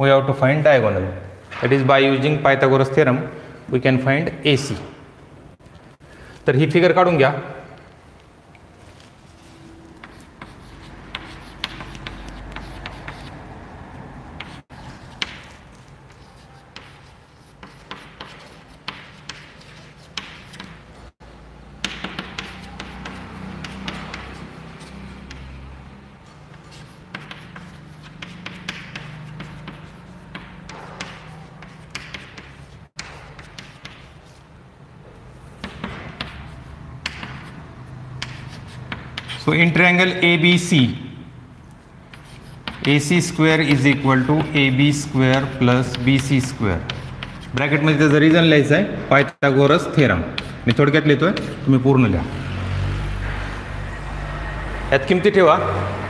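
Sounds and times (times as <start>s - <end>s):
chalk writing on chalkboard: 10.0s - 13.5s, 14.4s - 20.9s, 21.8s - 25.7s, 26.3s - 34.5s, 35.5s - 39.6s, 41.7s - 48.5s, 50.2s - 51.9s.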